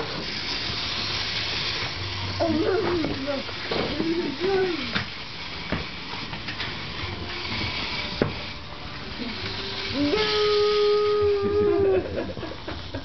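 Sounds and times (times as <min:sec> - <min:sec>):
person singing long oooh note: 0:09.2 - 0:12.1.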